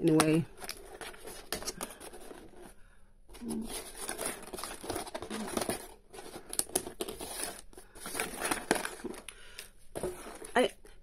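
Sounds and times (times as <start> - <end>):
plastic film crinkling and tearing: 3.4 - 9.3.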